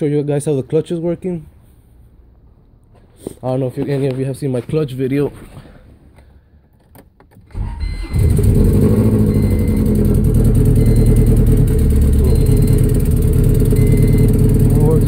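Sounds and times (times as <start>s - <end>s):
car engine cranking and idling: 6.6s - 15.0s.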